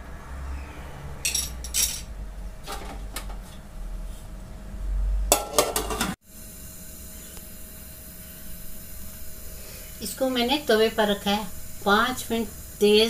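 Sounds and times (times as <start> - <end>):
metal cookware clanking: 1.2 - 2.1, 5.3 - 6.2
faint steady hum: 1.3 - 13.0.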